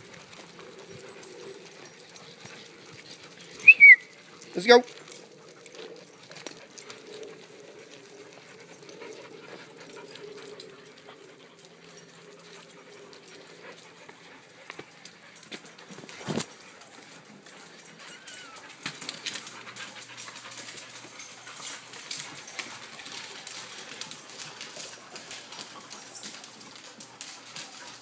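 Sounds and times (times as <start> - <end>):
dog whimper: 1.0 - 6.2, 16.3 - 19.3.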